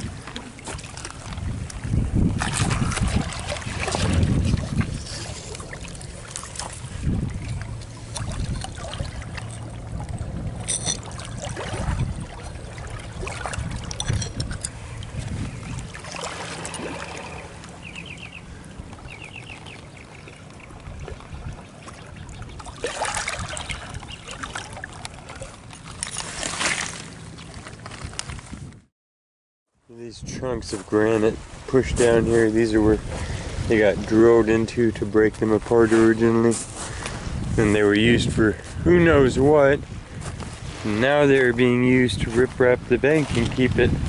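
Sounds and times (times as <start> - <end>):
water trickling over rocks: 18.7 - 26.3.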